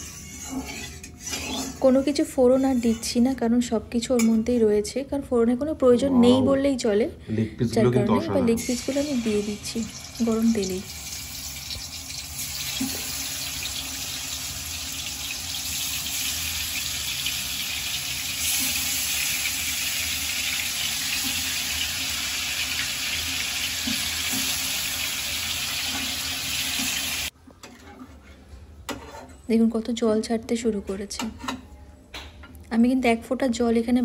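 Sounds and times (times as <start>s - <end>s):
chicken sizzling in hot oil: 8.6s - 27.3s.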